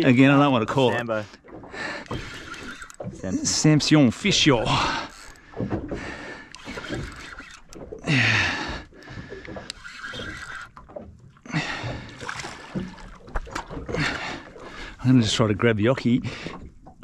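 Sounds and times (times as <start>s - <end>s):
water lapping against boat hull: 0.0s - 17.0s.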